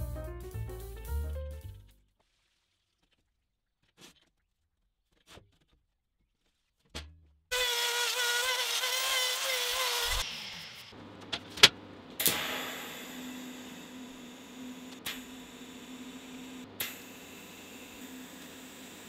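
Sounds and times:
die grinder whining: 0:07.6 - 0:10.6
welding arc crackling and hissing: 0:12.2 - 0:19.0.

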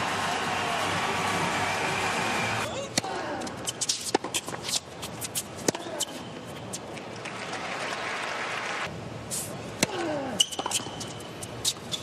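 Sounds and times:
stadium crowd applauding: 0:00.0 - 0:02.7, 0:07.2 - 0:08.9.

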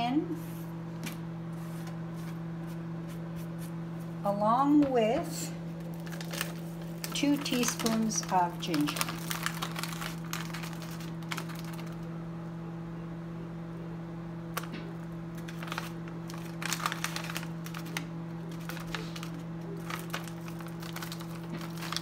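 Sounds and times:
plastic pouch crinkling: 0:05.8 - 0:12.1, 0:14.5 - 0:22.0.

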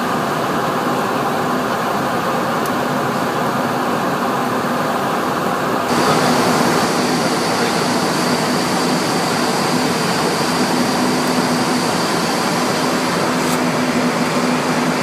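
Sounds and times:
rushing air in cockpit: 0:05.8 - 0:15.0
faint high whine: 0:05.9 - 0:15.0.

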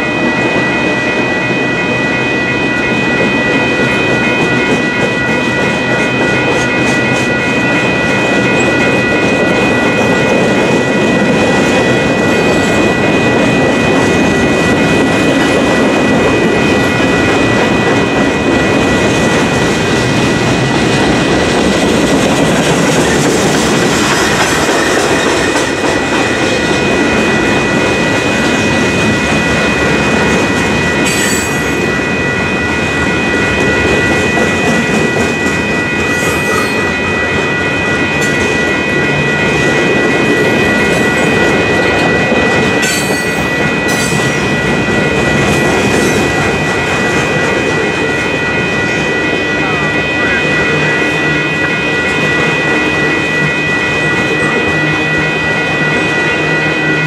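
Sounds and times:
crossing bells ringing: 0:00.0 - 0:57.0
train wheels clattering over rails: 0:04.2 - 0:32.0.

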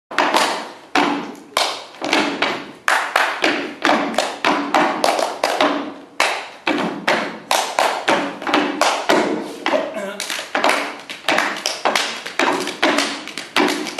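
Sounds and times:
foot stomps on wooden stage: 0:00.1 - 0:13.9
hand claps: 0:01.3 - 0:02.0, 0:02.8 - 0:09.3, 0:10.2 - 0:13.9.

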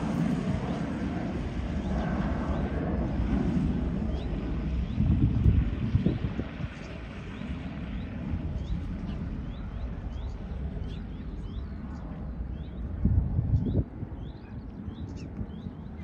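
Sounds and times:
distant jet engine rumble: 0:00.0 - 0:16.0
small birds chirping: 0:04.0 - 0:05.8, 0:06.6 - 0:16.0.

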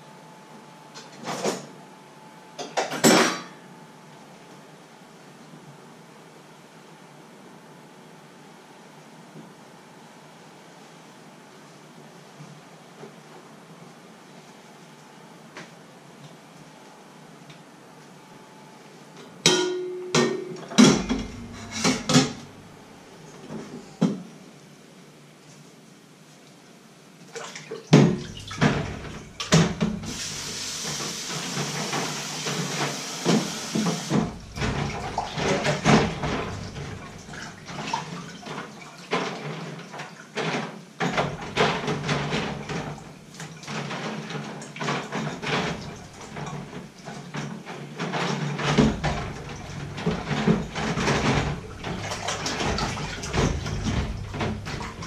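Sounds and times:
dishes and pots clattering: 0:02.6 - 0:03.6, 0:19.5 - 0:22.6, 0:43.7 - 0:55.0
water splashing: 0:27.3 - 0:39.9, 0:48.5 - 0:55.0
tap running: 0:27.9 - 0:39.2, 0:48.6 - 0:55.0.

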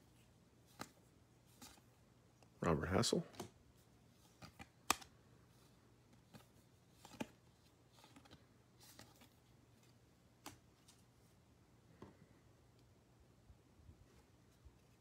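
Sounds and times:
cards sliding and rustling: 0:00.0 - 0:02.0, 0:03.3 - 0:11.2.

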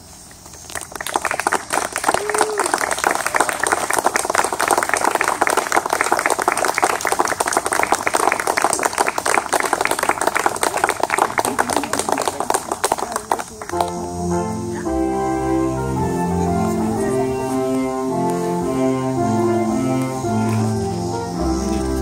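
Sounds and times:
crowd clapping: 0:00.6 - 0:14.9, 0:20.4 - 0:20.7.

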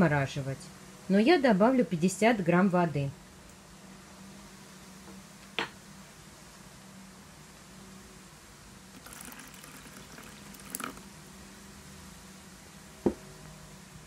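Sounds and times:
water trickling into a bowl: 0:08.9 - 0:11.1.

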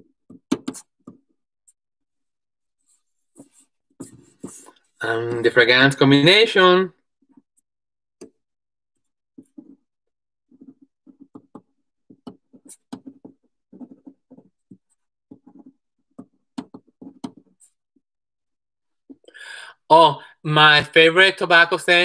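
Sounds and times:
pen scratching on paper: 0:09.4 - 0:09.9, 0:10.5 - 0:17.8.

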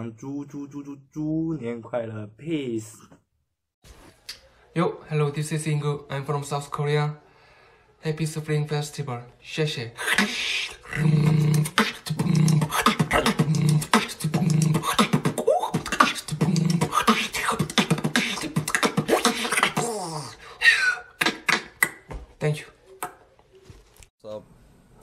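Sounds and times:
beatboxing mouth clicks and drums: 0:10.0 - 0:20.3, 0:21.2 - 0:22.1.

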